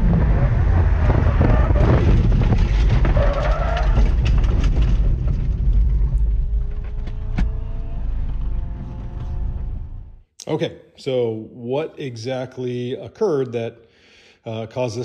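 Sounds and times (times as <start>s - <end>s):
tyres rumbling over rough ground: 0.0s - 10.2s
steady engine tone: 6.2s - 10.2s.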